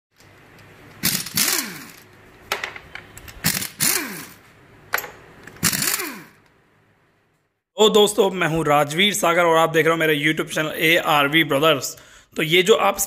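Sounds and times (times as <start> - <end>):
power tool spinning up with rattle: 1.0 - 2.1, 3.4 - 4.4, 5.5 - 6.4.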